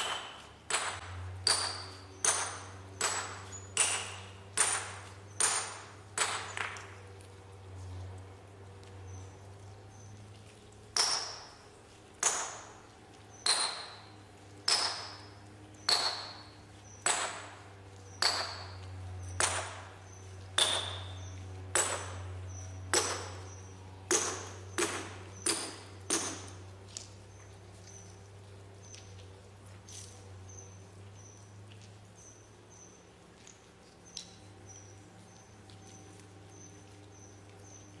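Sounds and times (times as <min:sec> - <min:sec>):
sledgehammer striking steel wedges: 0:00.0 - 0:06.8, 0:14.7 - 0:17.6, 0:18.2 - 0:19.9, 0:20.6 - 0:22.3, 0:22.9 - 0:26.6.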